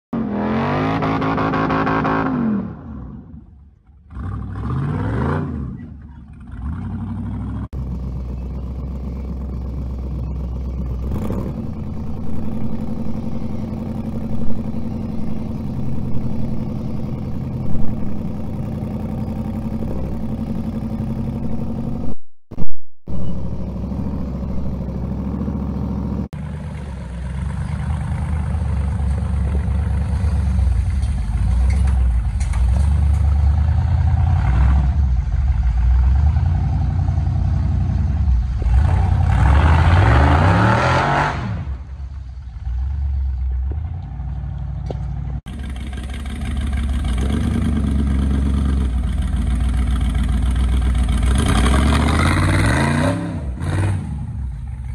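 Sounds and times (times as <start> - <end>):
buggy engine revving and running: 0.1 - 54.9.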